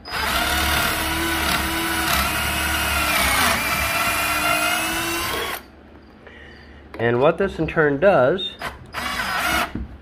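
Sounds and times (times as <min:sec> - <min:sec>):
drill motor whine: 0:00.0 - 0:05.7, 0:08.6 - 0:09.7.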